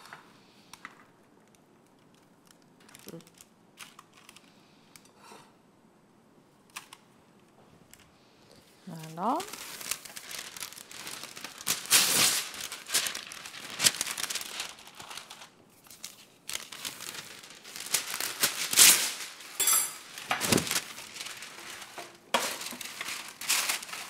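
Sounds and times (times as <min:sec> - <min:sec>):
crinkling and rustling: 0:00.8 - 0:04.6, 0:06.7 - 0:24.0.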